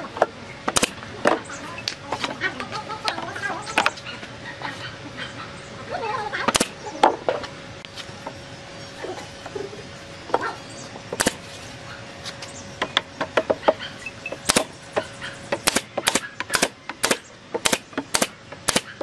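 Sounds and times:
pneumatic nail gun shots: 0.7s - 1.0s, 6.5s - 6.8s, 11.2s - 11.5s, 14.4s - 14.8s, 15.6s - 19.0s.

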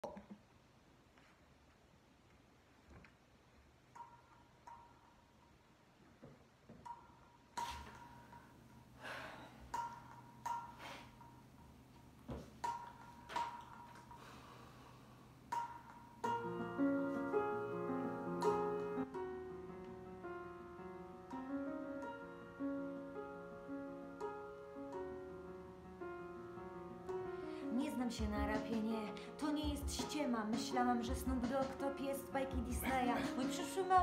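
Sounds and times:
piano chords of a rap beat: 27.4s - 34.0s.

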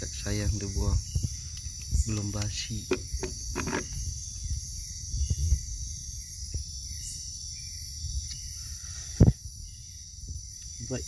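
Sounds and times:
night insects chorus: 0.0s - 11.0s
bumps and rustles near microphone: 0.9s - 4.0s.

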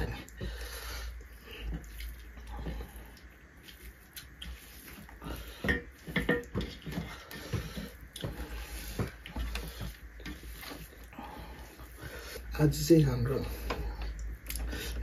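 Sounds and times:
fingers mixing food on metal plates: 0.0s - 15.0s
wet chewing and lip-smacking: 1.1s - 5.4s, 13.9s - 15.0s.

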